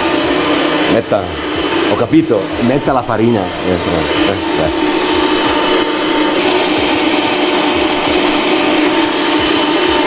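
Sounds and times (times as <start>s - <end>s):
stand mixer motor hum: 0.0s - 10.0s.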